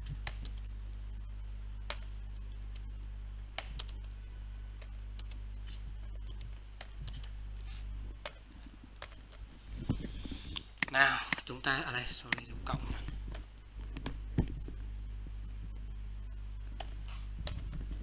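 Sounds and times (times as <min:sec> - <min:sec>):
steady low hum: 0:00.0 - 0:18.0
typing on computer keyboard: 0:03.6 - 0:04.1.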